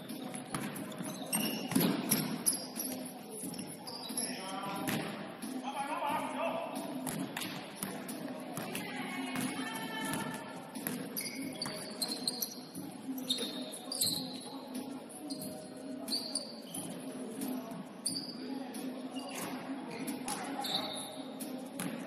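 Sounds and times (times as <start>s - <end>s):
sneakers squeaking on floor: 0.0s - 5.2s, 9.4s - 18.5s, 19.1s - 22.0s
basketball bouncing: 0.5s - 2.4s.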